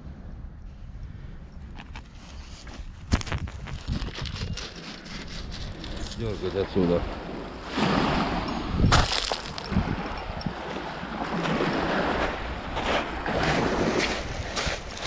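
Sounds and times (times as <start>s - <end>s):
waves washing over pebbles: 5.8s - 15.0s.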